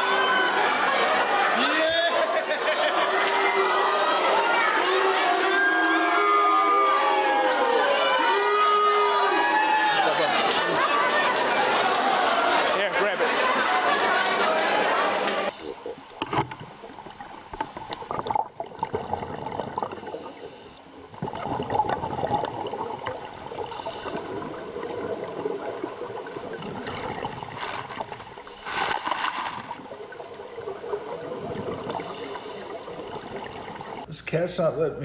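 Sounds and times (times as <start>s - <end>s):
underwater bubbles gurgling: 15.5s - 34.1s
diver breathing through regulator: 17.5s - 18.4s, 19.0s - 20.9s, 23.6s - 24.7s, 31.6s - 33.4s.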